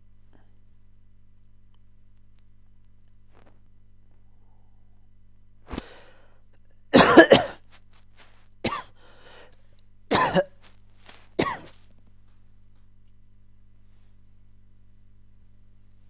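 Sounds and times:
person coughing: 0:07.0 - 0:07.6, 0:08.6 - 0:09.0, 0:10.1 - 0:10.6, 0:11.4 - 0:11.8.

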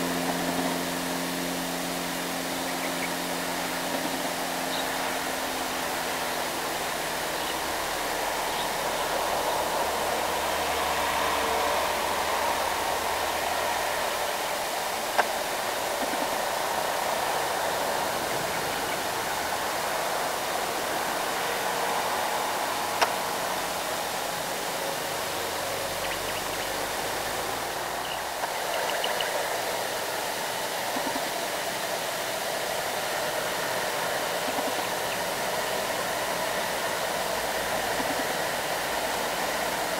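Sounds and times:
heavy trucks passing: 0:00.0 - 0:28.5.

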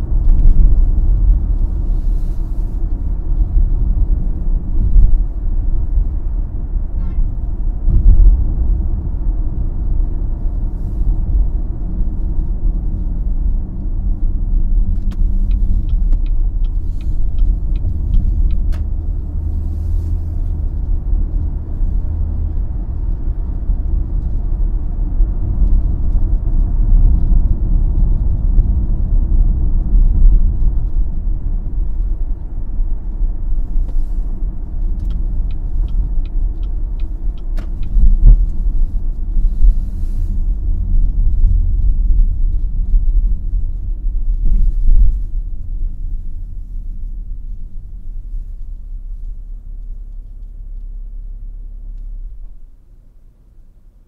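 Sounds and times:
road and tyre rumble: 0:00.0 - 0:54.0
light ticks: 0:11.3 - 0:19.3, 0:25.5 - 0:45.8, 0:48.3 - 0:51.1.

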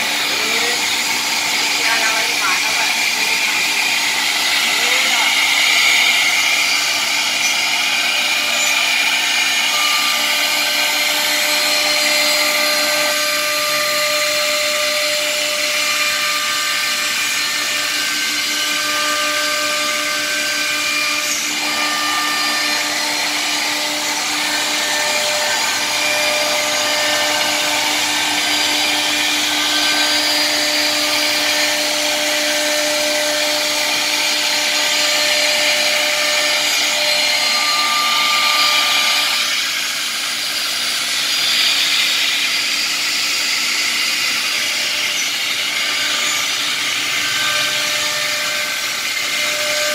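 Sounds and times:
router spindle whine: 0:00.0 - 0:49.9.

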